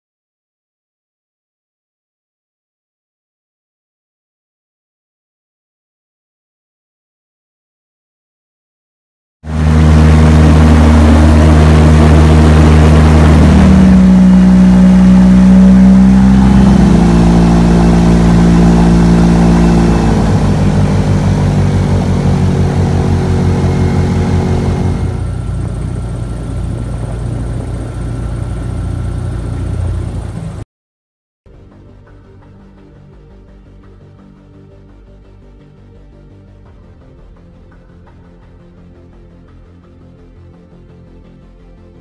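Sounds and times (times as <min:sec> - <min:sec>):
boat engine running: 0:09.5 - 0:30.6.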